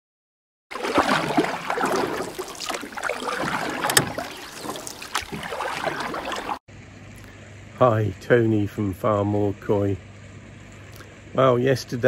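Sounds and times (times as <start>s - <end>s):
water splashing and sloshing: 0.7s - 6.6s.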